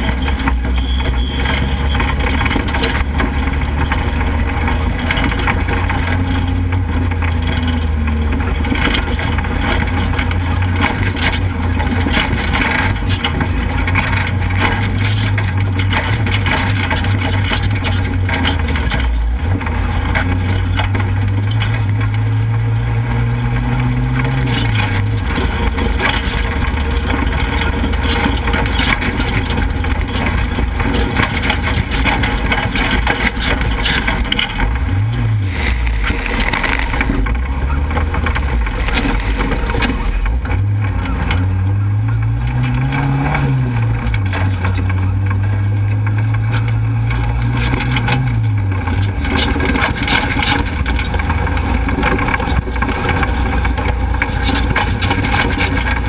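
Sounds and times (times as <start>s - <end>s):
race truck engine revving: 0.0s - 56.0s.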